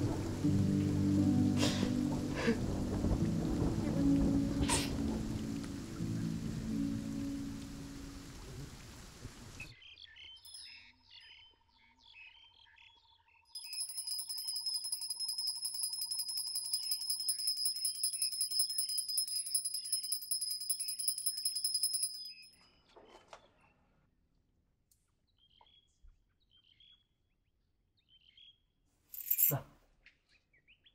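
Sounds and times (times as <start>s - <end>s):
rain: 0.0s - 9.7s
hand bell ringing rapidly: 13.6s - 22.5s.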